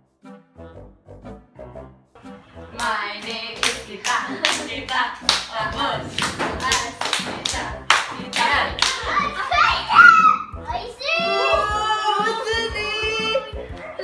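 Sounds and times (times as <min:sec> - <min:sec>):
children chanting: 0:02.4 - 0:12.2.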